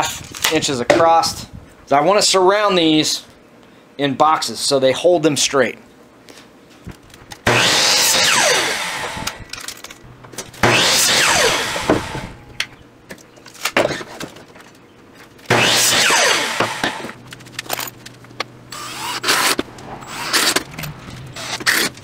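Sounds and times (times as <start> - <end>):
miter saw cutting wood: 7.4 - 9.4, 10.6 - 12.5, 15.5 - 17.2, 18.7 - 22.0.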